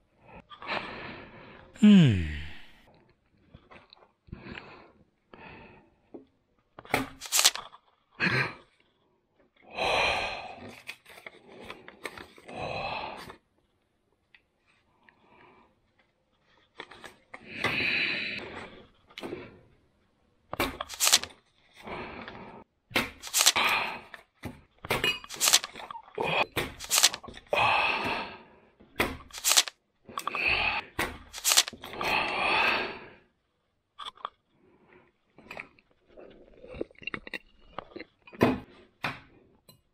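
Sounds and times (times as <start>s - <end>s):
paper rustling and crinkling: 7.1s - 7.7s, 20.8s - 21.3s, 23.2s - 23.6s, 25.3s - 25.8s, 26.7s - 27.2s, 29.3s - 29.7s, 31.3s - 31.8s
objects clicking and tapping on desk: 25.3s - 25.8s.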